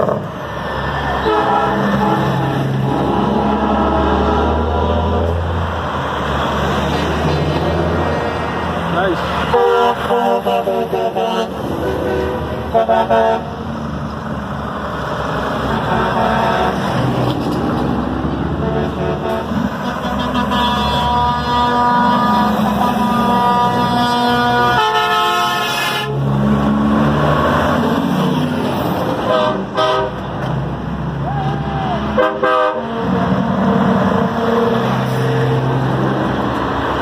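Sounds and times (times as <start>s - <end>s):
diesel trucks driving past: 0.0s - 37.0s
truck air horn blasts: 1.2s - 4.8s, 9.4s - 13.6s, 15.6s - 16.9s, 18.6s - 26.2s, 29.2s - 30.3s, 32.1s - 35.6s.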